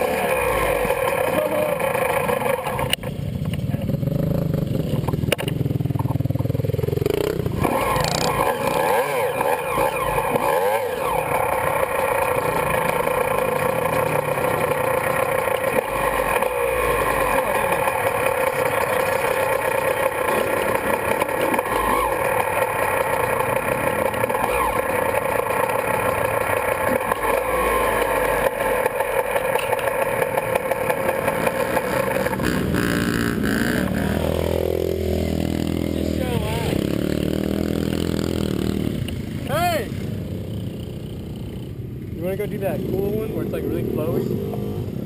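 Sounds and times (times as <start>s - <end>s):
motorcycle engine idling: 0.0s - 34.5s.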